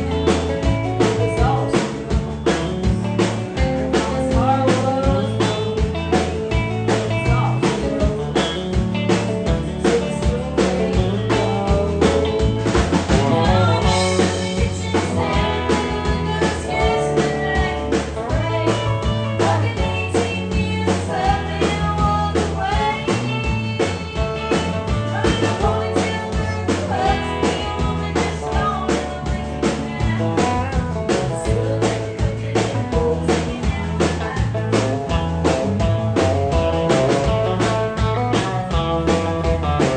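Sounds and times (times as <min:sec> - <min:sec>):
woman singing: 0:00.0 - 0:35.2
live band playing: 0:00.0 - 0:39.9.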